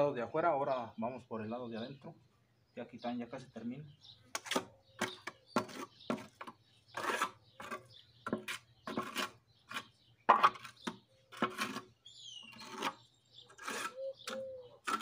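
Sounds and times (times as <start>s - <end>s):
trowel scraping wet cement: 4.3s - 15.0s.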